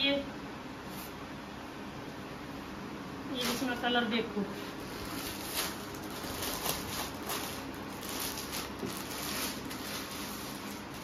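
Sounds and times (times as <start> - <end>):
plastic bag crinkling: 4.8 - 11.0.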